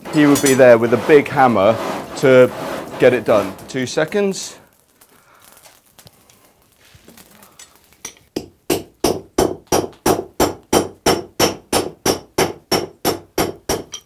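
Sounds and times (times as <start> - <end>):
hammer striking hot metal: 0.0 - 4.0, 8.0 - 14.0.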